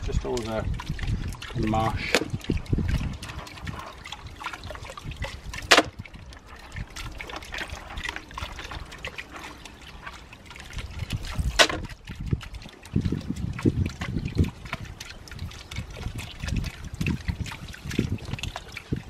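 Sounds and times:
water trickling and sloshing: 0.0 - 19.0
sharp knocks: 5.7 - 5.9.

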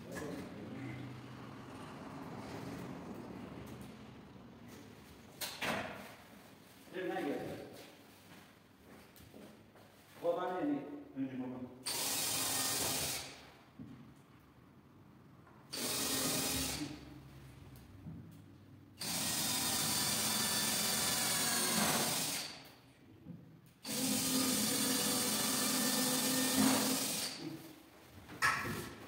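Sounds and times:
power drill drilling: 11.8 - 13.4, 15.7 - 17.0, 19.0 - 22.6, 23.8 - 27.4.

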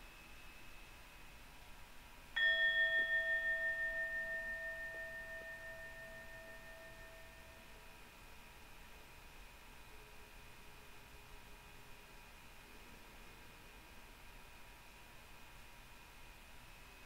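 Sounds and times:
bell chime ringing: 2.4 - 7.7.

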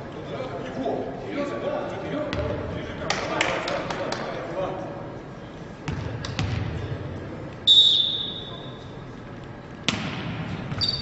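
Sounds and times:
ball bouncing on hardwood court: 2.3 - 2.6, 5.8 - 6.8, 9.8 - 11.0
referee's whistle blast: 7.6 - 8.8.

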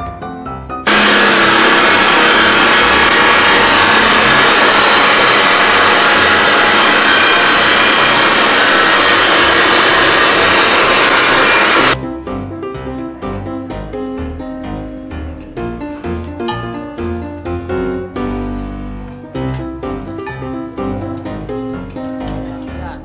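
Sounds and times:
chop saw grinding metal: 0.9 - 12.0.

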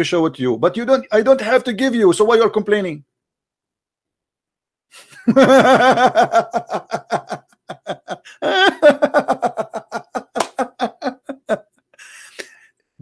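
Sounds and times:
man laughing loudly: 5.0 - 12.6.

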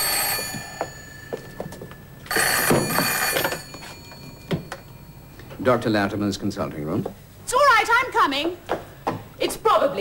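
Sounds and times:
desk telephone ringing: 0.0 - 5.6.

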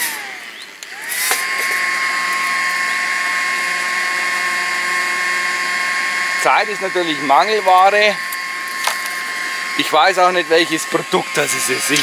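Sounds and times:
fan motor whining: 0.0 - 12.0.

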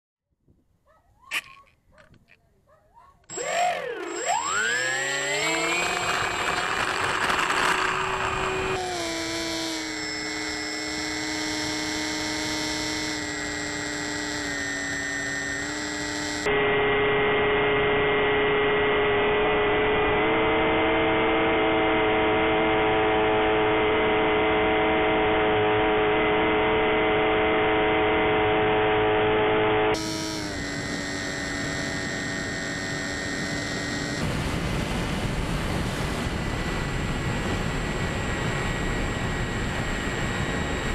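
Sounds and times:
electric motor and propeller whining: 1.2 - 2.4, 3.2 - 40.9
wind rush: 34.2 - 40.9.

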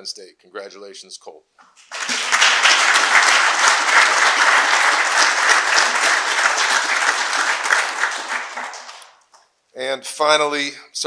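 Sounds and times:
audience applauding: 1.8 - 9.2.

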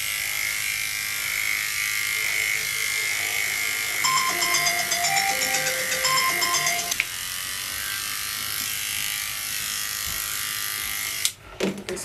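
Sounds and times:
electric clippers buzzing: 0.0 - 4.1, 6.9 - 11.4
background music: 2.3 - 7.0.

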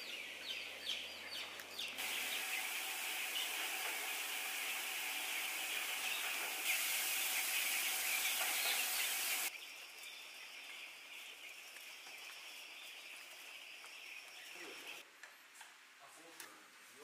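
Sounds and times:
chicks peeping: 0.0 - 15.0
steady hiss: 2.0 - 9.5.

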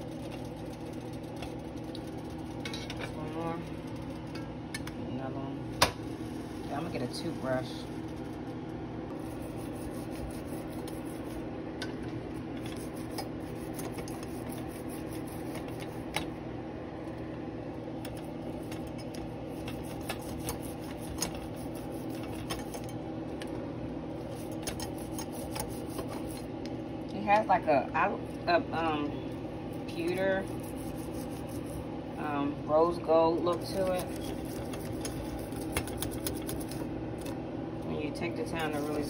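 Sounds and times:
steady low hum: 0.0 - 39.0
toothbrush scrubbing metal: 9.2 - 11.4, 12.6 - 16.2, 18.1 - 22.9, 24.3 - 26.5, 29.9 - 31.8, 33.5 - 36.8, 38.4 - 39.0.

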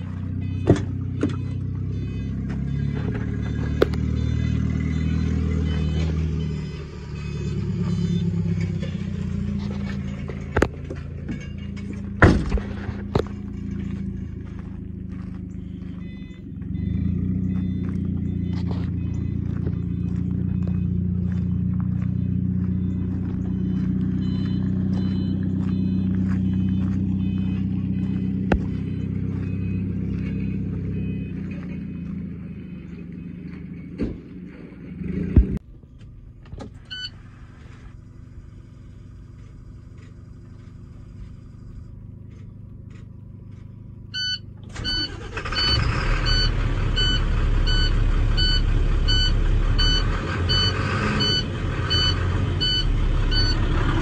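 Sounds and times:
repeating warning beep: 0.0 - 34.1, 36.9 - 37.2, 44.1 - 54.0
truck diesel engine running: 0.0 - 54.0
short warning chimes: 13.2 - 34.0, 44.1 - 53.7.

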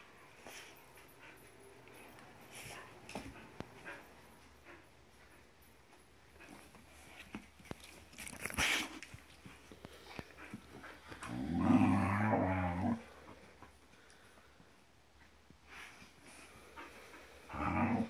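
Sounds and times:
dog play-growl: 10.4 - 13.2, 17.5 - 18.0.

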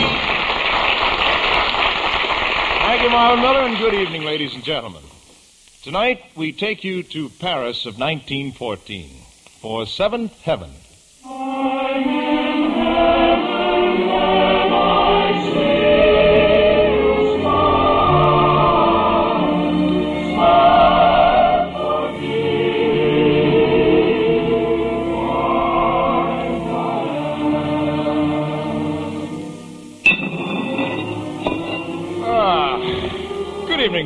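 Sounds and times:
choir singing: 11.2 - 34.0
orchestral accompaniment: 11.2 - 34.0.

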